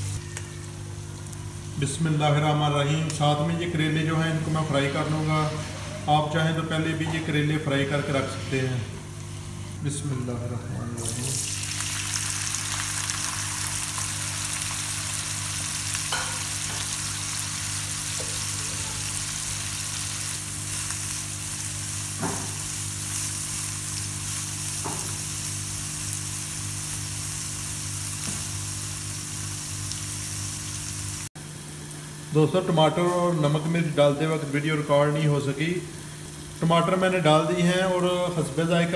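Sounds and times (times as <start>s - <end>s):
vegetables sizzling in oil: 11.1s - 34.0s.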